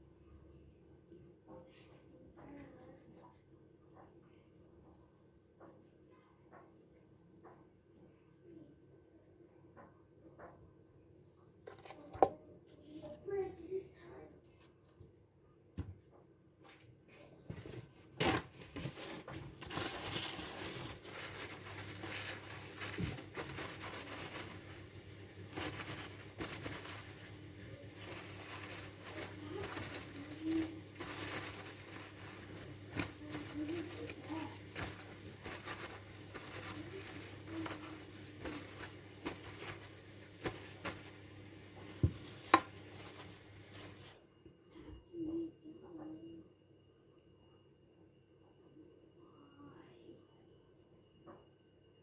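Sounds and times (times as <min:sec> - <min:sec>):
rustling and crinkling: 0:16.6 - 0:44.2.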